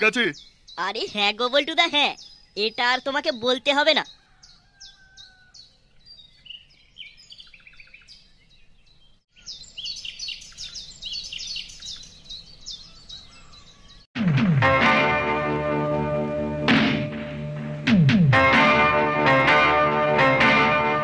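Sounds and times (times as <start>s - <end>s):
small birds chirping: 0.0s - 14.1s
loud music: 14.2s - 21.0s.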